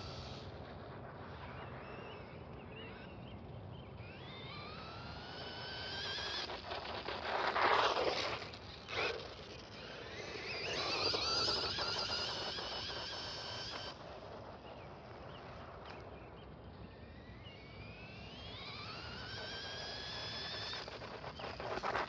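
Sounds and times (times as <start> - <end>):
electric motor whining: 4.0 - 14.2, 17.2 - 22.0.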